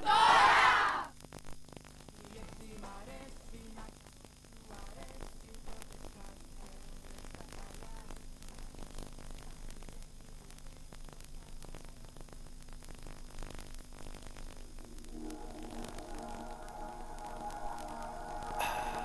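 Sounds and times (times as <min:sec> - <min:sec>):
tape hiss: 0:00.0 - 0:19.0
faint crackles: 0:01.1 - 0:19.0
low hum: 0:14.5 - 0:19.0.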